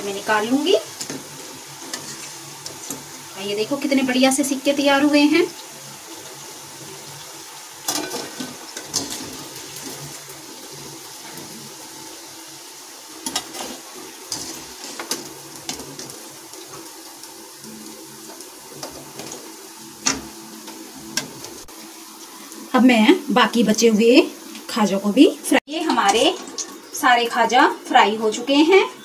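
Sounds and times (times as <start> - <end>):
hot oil sizzling: 0.0 - 29.0.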